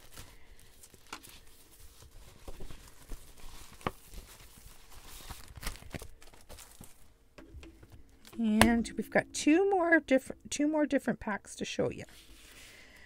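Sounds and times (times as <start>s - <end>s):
cellophane crinkling: 0.0s - 8.3s.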